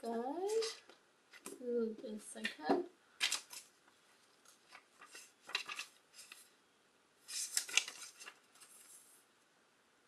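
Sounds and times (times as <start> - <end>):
book pages rustling: 0.5 - 1.6, 3.2 - 6.6, 7.2 - 9.2.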